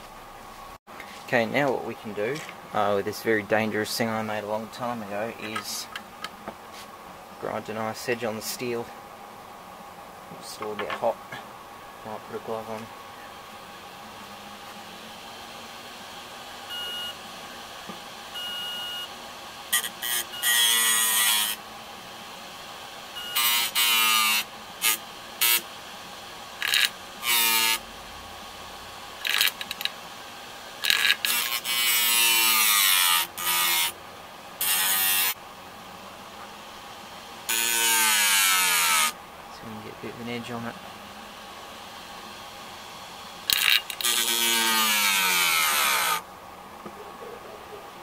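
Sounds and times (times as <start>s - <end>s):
hard drive whine: 0.0s - 48.0s
short beeps: 16.7s - 17.2s.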